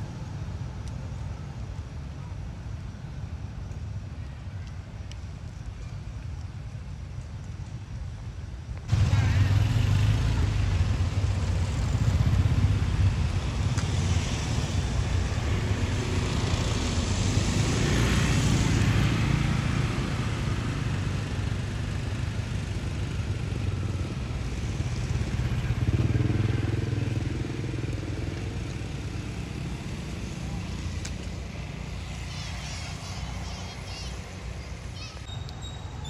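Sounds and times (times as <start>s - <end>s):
vehicle rumble: 0.0s - 36.0s
vehicle passing by: 8.9s - 35.3s.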